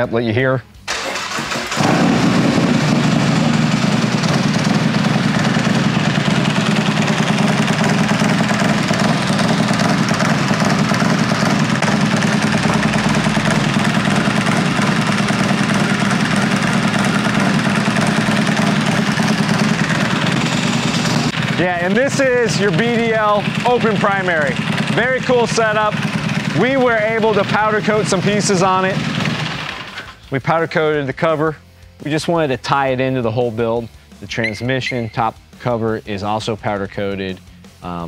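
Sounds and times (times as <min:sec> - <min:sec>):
motorcycle engine cranking: 0:00.9 - 0:28.2, 0:29.0 - 0:30.2
motorcycle engine idling: 0:01.7 - 0:30.0.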